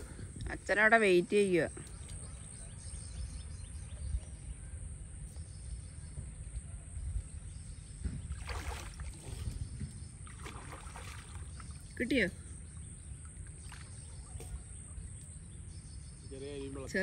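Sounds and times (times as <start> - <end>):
water splashing: 8.2 - 9.6, 10.2 - 12.1, 13.1 - 14.4.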